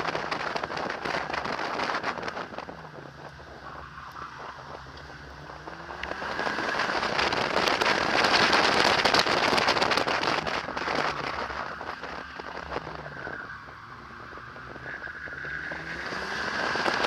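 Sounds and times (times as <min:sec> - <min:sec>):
car tyres on concrete floor: 0:00.0 - 0:17.0.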